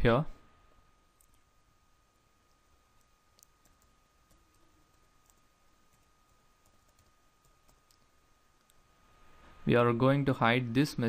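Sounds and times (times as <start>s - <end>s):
faint high whine: 0.0s - 11.0s
faint keyboard typing: 1.1s - 1.5s, 2.4s - 8.8s.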